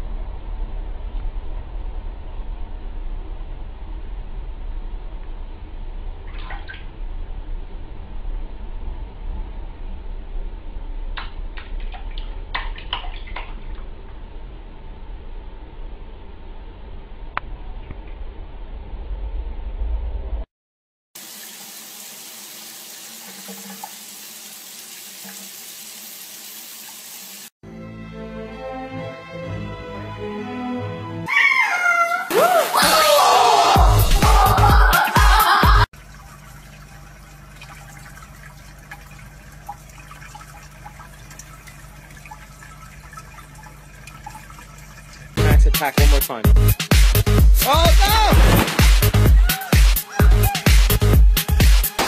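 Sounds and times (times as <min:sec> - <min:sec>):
steady low hum: 0:00.0 - 0:20.4
shower spraying into bathtub: 0:21.2 - 0:27.5, 0:47.6 - 0:49.2
water trickling from a tap: 0:21.2 - 0:27.5, 0:36.0 - 0:45.4.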